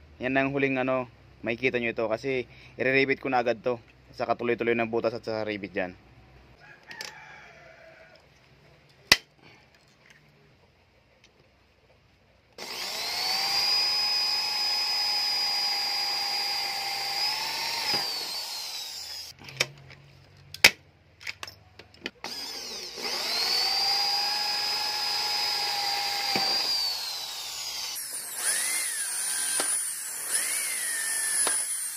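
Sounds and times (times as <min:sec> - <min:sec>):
electric drill boring through metal: 0:12.6 - 0:19.4, 0:22.2 - 0:31.9.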